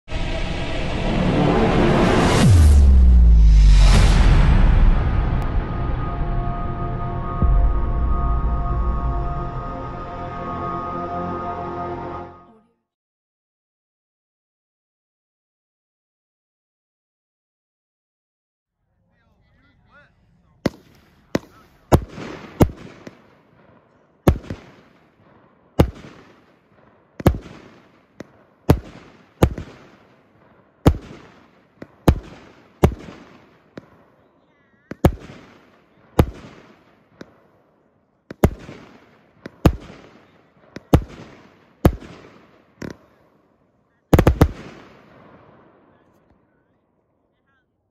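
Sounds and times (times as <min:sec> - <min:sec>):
firework bangs with echo: 0:20.6 - 0:34.2, 0:34.9 - 0:37.6, 0:38.3 - 0:43.2, 0:44.1 - 0:46.0.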